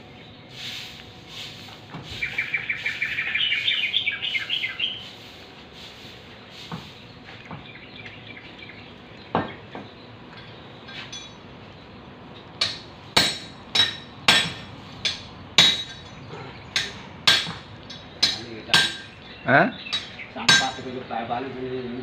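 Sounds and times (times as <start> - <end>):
hammer striking metal horseshoe: 12.6 - 16.2, 16.8 - 19.2, 19.9 - 20.8.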